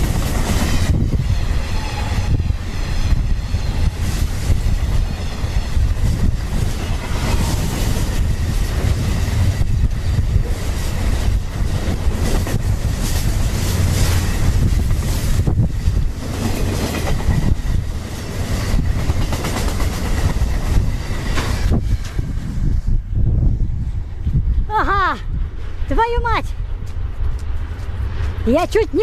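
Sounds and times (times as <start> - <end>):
train wheels rumbling on rail: 0.0 - 25.9, 26.5 - 29.0
wheels clacking over rail joints: 10.3 - 22.2.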